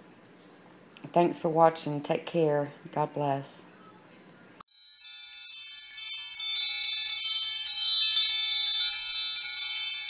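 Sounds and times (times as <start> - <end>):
chimes ringing: 4.7 - 10.0.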